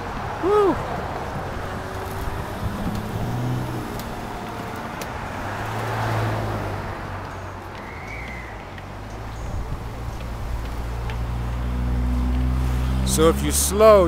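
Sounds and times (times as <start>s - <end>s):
footsteps on wooden stairs: 1.1s - 12.5s.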